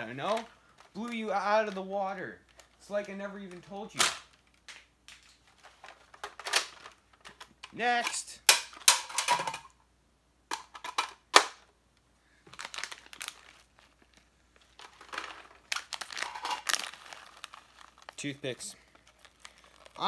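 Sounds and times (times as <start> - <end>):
plastic packet crinkling: 0.0 - 7.6, 12.4 - 20.0.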